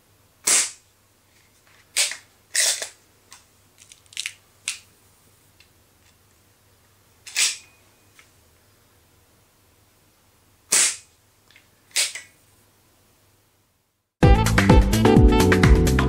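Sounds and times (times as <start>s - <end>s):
air pistol shot: 0.4s - 0.8s, 10.7s - 11.1s.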